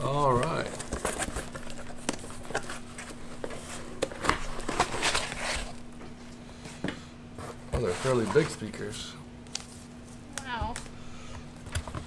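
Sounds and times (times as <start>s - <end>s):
foam and cardboard rustling: 0.0s - 6.0s, 7.4s - 8.8s.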